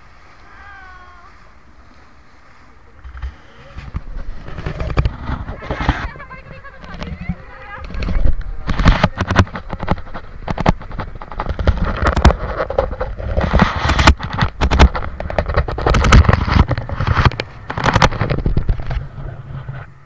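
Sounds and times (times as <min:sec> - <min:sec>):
microphone handling noise: 0:00.0 - 0:20.0.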